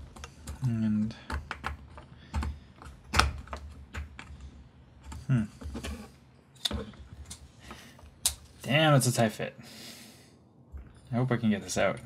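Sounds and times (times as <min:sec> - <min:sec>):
small clicks and taps: 0:00.0 - 0:05.3.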